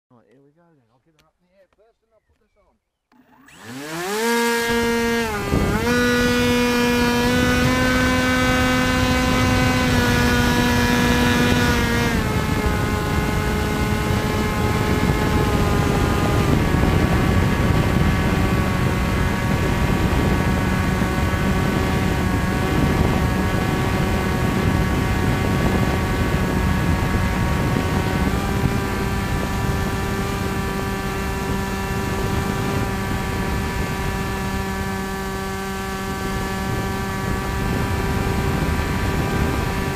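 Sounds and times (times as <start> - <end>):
electric motor whine: 3.1 - 39.9
wind rushing over microphone: 3.5 - 39.9.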